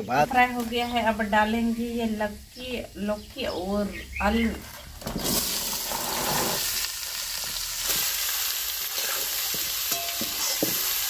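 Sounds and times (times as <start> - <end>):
vegetables sizzling in hot oil: 4.8 - 11.0.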